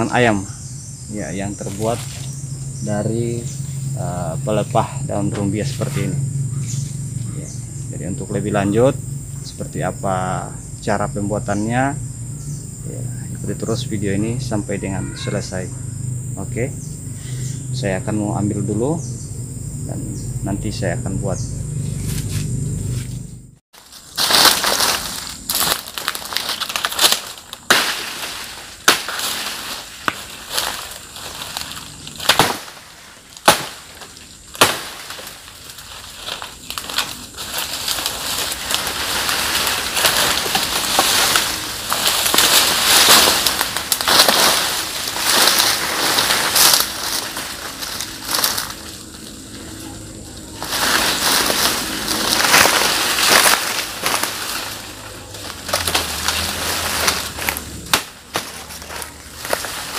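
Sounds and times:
fronds rustling and crunching: 0:00.0 - 0:17.2, 0:20.6 - 0:59.9
dry palm fronds snapping: 0:01.4 - 0:03.6, 0:23.7 - 0:59.9.

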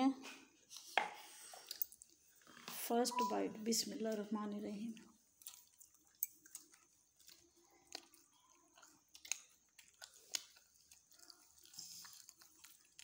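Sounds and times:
faint chewing: 0:00.2 - 0:02.9, 0:04.0 - 0:13.0
small wet clicks: 0:03.9 - 0:13.0.

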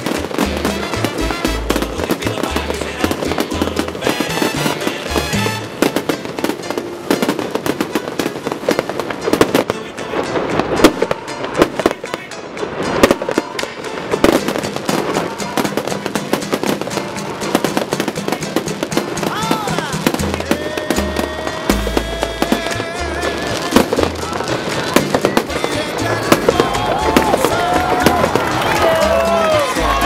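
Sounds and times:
fireworks bangs and crackling: 0:00.0 - 0:30.0.

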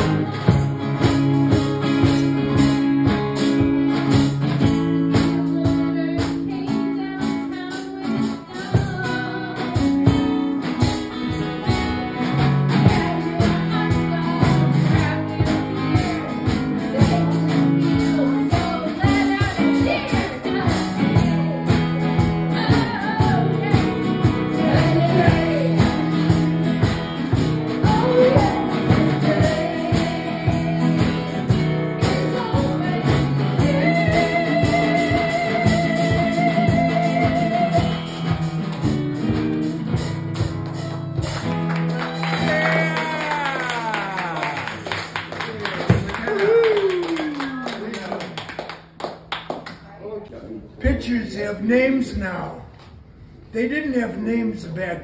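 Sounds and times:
woman singing into a microphone: 0:00.0 - 0:01.2, 0:05.1 - 0:10.5, 0:11.6 - 0:26.7, 0:27.7 - 0:38.2
strummed acoustic guitar: 0:00.0 - 0:46.1.

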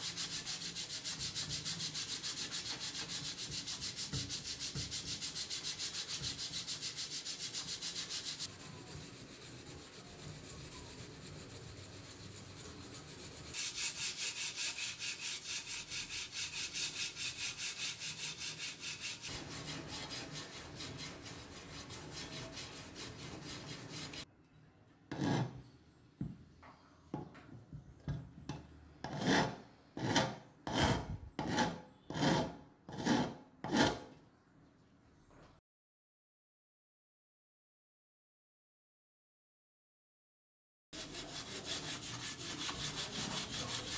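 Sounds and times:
sandpaper scraping on metal: 0:00.0 - 0:24.3, 0:41.0 - 0:43.9.

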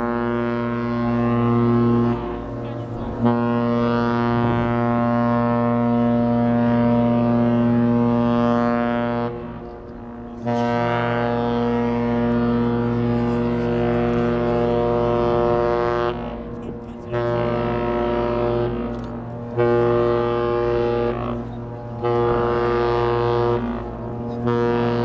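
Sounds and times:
deep ship's whistle blasts: 0:00.0 - 0:25.0.

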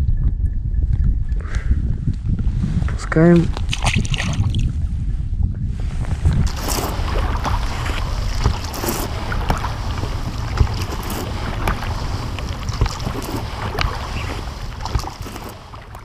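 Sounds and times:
wind noise on microphone: 0:00.0 - 0:16.0
oars splashing in water: 0:06.5 - 0:16.0.

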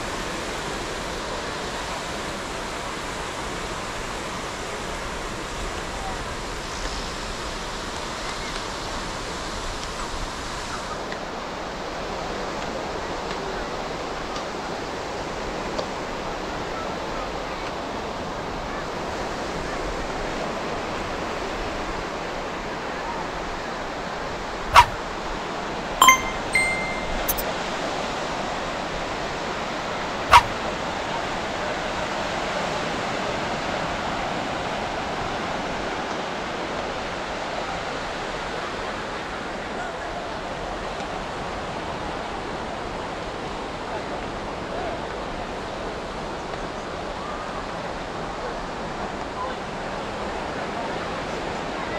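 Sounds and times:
sharp short sounds: 0:24.8 - 0:25.0.

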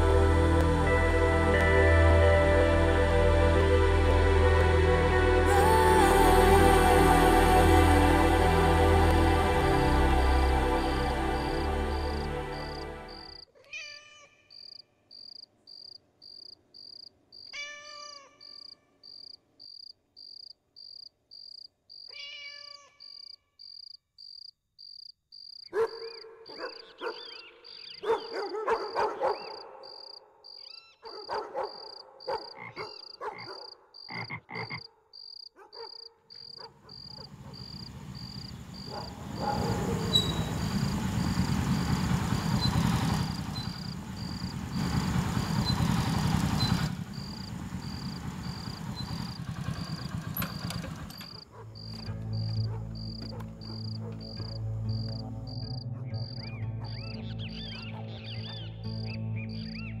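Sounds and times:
vehicle engine rumble: 0:00.0 - 0:13.4, 0:36.8 - 1:00.0
insect chirping: 0:14.5 - 0:28.4, 0:29.4 - 0:57.1
animal calls: 0:25.7 - 0:34.9, 0:35.6 - 0:41.5, 0:45.6 - 0:59.1.

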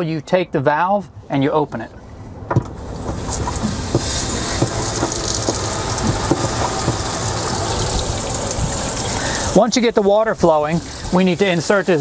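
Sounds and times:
water gushing into a tank: 0:02.8 - 0:12.0.

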